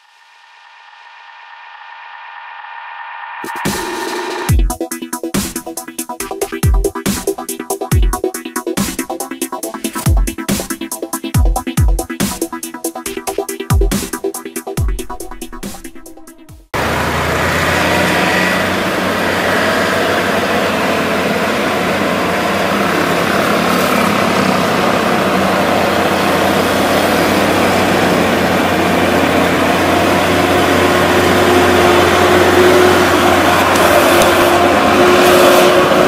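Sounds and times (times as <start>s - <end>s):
diesel truck engine straining: 14.8s - 36.0s
car passing: 16.8s - 36.0s
motorcycles passing: 16.8s - 36.0s.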